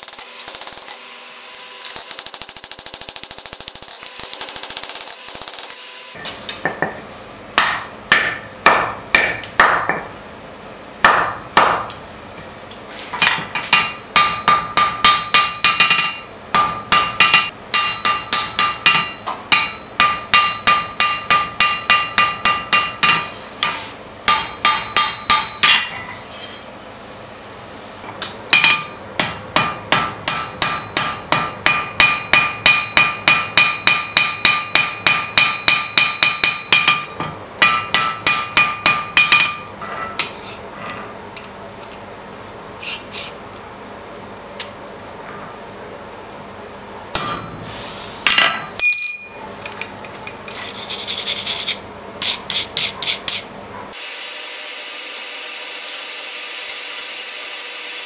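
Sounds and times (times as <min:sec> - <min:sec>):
hammer ringing on anvil: 0:07.6 - 0:10.1, 0:11.0 - 0:12.0, 0:13.7 - 0:23.4, 0:24.3 - 0:26.2, 0:28.5 - 0:39.7, 0:47.1 - 0:49.5.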